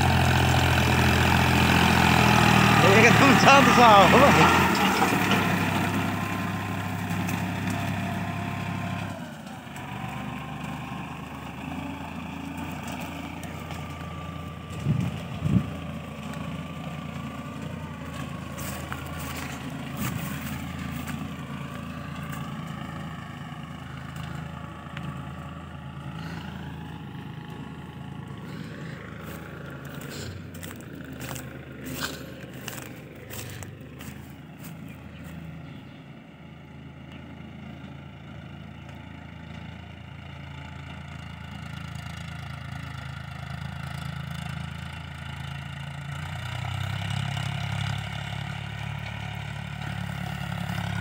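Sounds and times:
tractor diesel engine running: 0.0s - 51.0s.

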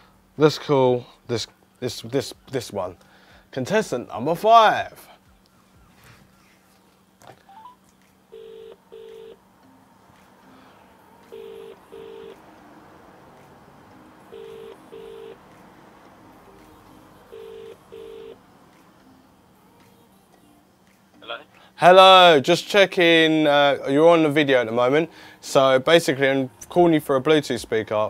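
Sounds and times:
double-ring telephone ringing tone: 7.5s - 9.4s, 11.2s - 12.4s, 14.3s - 15.4s, 17.3s - 18.4s.

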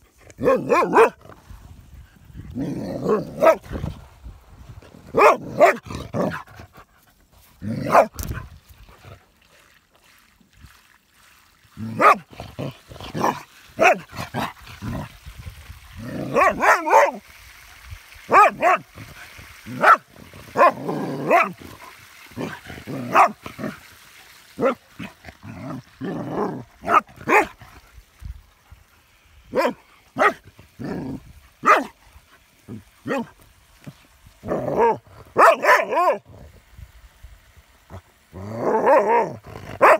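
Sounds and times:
dog barking and yipping: 0.4s - 1.2s, 3.0s - 3.6s, 5.1s - 6.4s, 7.8s - 8.2s, 13.2s - 14.1s, 16.2s - 17.2s, 18.3s - 18.9s, 19.7s - 21.6s, 22.4s - 23.8s, 26.8s - 27.6s, 29.5s - 30.4s, 31.6s - 31.9s, 33.0s - 33.3s, 34.7s - 36.2s, 38.8s - 39.9s.

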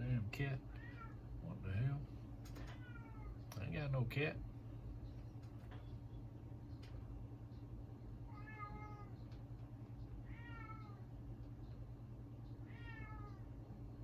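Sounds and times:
cat meowing: 0.7s - 1.2s, 2.6s - 3.4s, 8.3s - 9.2s, 10.2s - 11.0s, 12.7s - 13.5s.

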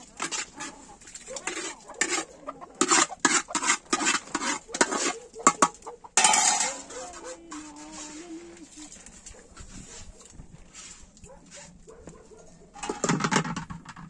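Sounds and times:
metal spoon clanking on pots: 0.0s - 7.9s, 12.8s - 14.0s.

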